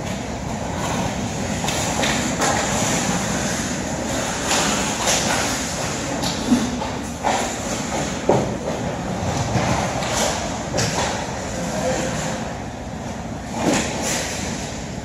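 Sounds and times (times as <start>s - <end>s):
skate blades scraping ice: 0.7s - 8.3s
hockey sticks clacking: 1.6s - 8.8s.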